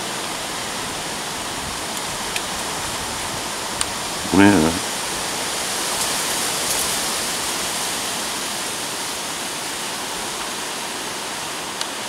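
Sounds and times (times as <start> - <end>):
steady rushing hiss: 0.0 - 12.0.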